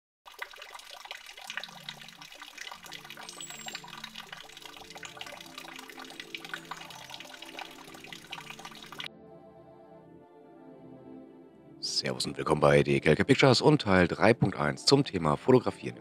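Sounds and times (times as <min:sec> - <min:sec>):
water dripping onto foliage: 0:00.3 - 0:09.1
soft background music: 0:01.0 - 0:16.0.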